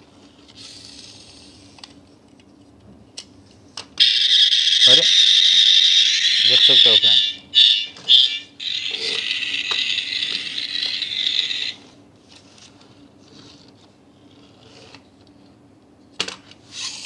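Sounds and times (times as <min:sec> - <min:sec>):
toy motor whirring: 0:00.4 - 0:01.8, 0:04.0 - 0:11.9, 0:16.7 - 0:17.0.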